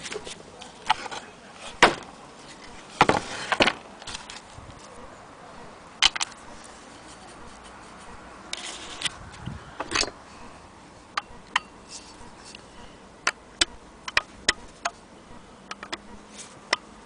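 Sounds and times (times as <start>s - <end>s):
sharp metal clicks: 13.2s - 15.0s, 15.7s - 16.1s.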